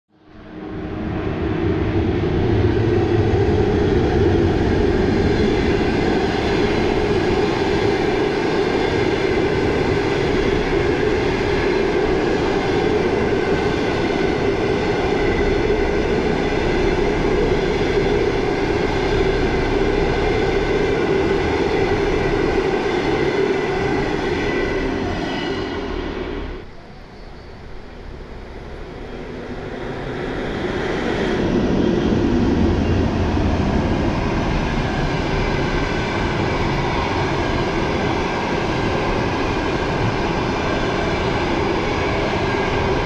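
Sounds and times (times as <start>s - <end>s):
locomotive low rumble: 0.3s - 43.0s
train wheels rolling on rail: 0.7s - 43.0s.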